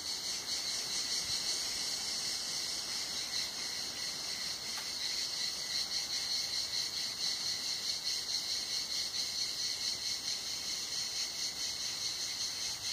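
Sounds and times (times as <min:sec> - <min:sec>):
cicadas singing: 0:00.0 - 0:12.9.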